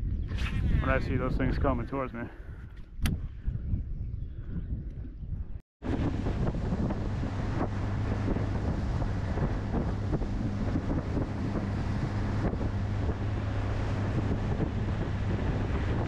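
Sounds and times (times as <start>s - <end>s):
wind on microphone: 0.0s - 16.0s
outboard motor running: 5.8s - 16.0s
water along boat hull: 5.8s - 16.0s.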